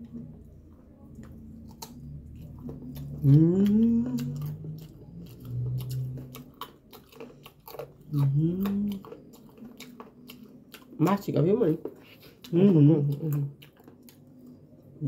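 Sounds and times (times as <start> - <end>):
low steady hum: 0.0 - 15.0
vocal moan rising in pitch: 3.0 - 4.7, 8.2 - 9.0
chewing and lip-smacking clicks: 13.1 - 14.6.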